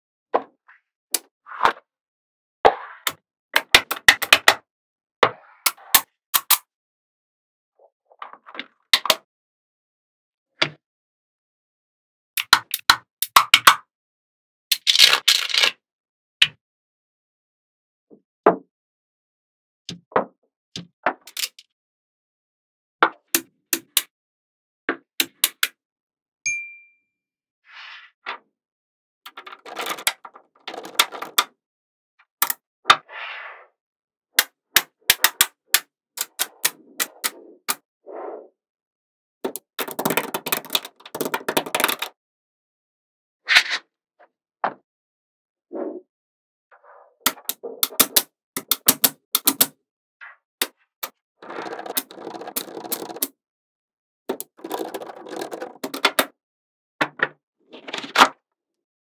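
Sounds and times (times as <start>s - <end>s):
magnetic balls clicking together: 39.5s - 42.1s, 47.3s - 49.7s, 51.6s - 53.3s, 54.3s - 56.2s.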